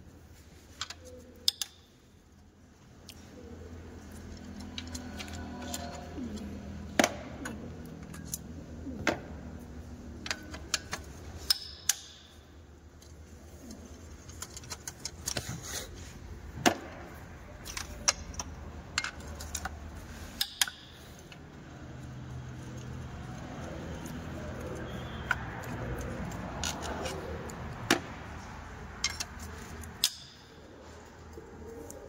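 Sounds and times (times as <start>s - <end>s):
socket wrench clicking on bolts: 0.8s - 1.9s, 10.3s - 12.4s, 17.6s - 21.4s, 29.0s - 30.5s.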